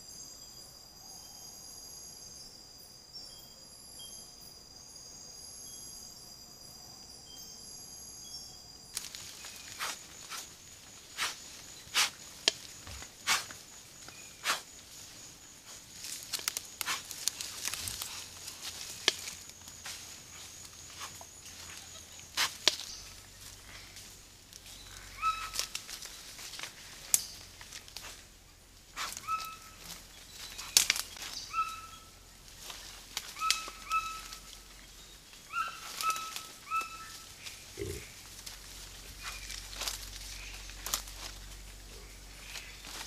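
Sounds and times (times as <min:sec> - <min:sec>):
faint high insect tone: 0:00.0 - 0:43.0
insect chorus trilling: 0:00.0 - 0:43.0
clicks and snaps in leaf litter: 0:09.0 - 0:10.5, 0:11.1 - 0:13.6, 0:16.0 - 0:19.6, 0:21.0 - 0:23.0, 0:25.4 - 0:28.2, 0:29.0 - 0:31.4, 0:39.2 - 0:41.4.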